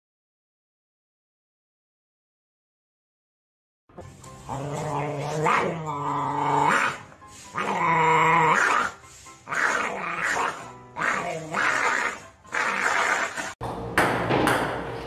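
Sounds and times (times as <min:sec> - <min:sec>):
dog growling: 0:04.4 - 0:13.6.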